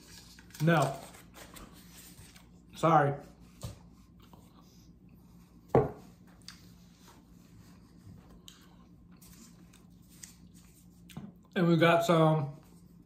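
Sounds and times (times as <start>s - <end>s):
faint steady hum: 0.0s - 13.0s
faint chewing: 8.3s - 11.6s.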